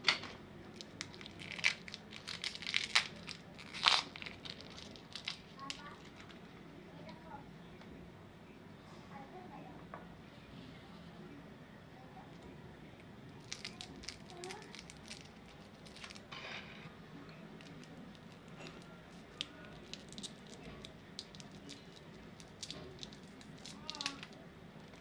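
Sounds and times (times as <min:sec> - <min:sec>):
foil wrapper crinkling: 0:00.7 - 0:06.4, 0:13.4 - 0:16.3, 0:17.6 - 0:25.0.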